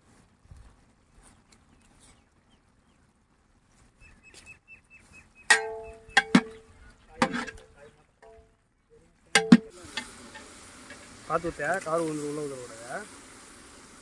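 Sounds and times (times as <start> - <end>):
bird chirping: 1.2 - 3.1, 3.8 - 9.3
ladle clanging on metal pot: 5.5 - 6.6, 7.2 - 8.4, 9.4 - 11.0.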